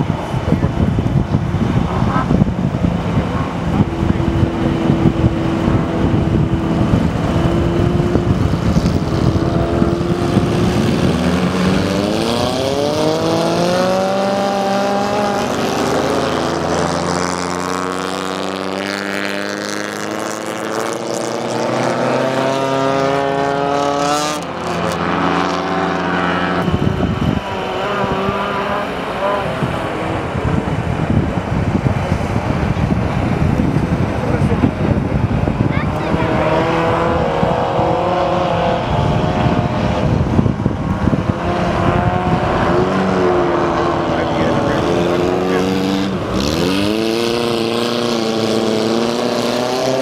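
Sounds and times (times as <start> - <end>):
race car engines idling: 0.0 - 12.3, 42.8 - 47.0
race car engines revving: 0.0 - 50.0
race cars racing: 0.0 - 50.0.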